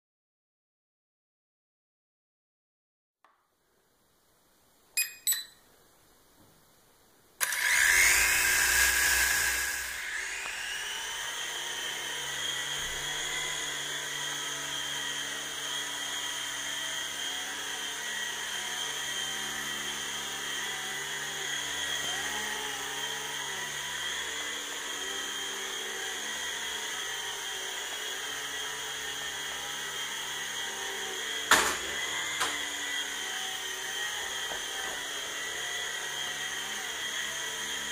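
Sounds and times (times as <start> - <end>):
toy helicopter motors whining: 7.4 - 37.9.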